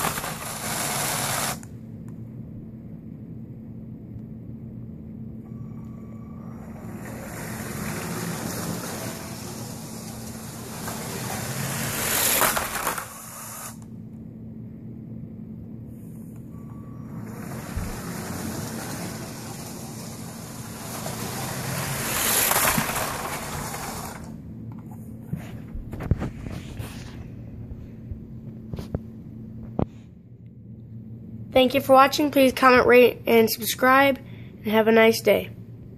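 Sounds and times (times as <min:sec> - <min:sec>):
toy train motor whirring: 0:00.0 - 0:01.7, 0:06.6 - 0:13.9, 0:17.1 - 0:24.3
plastic toys clattering: 0:08.0 - 0:13.5, 0:18.3 - 0:24.3.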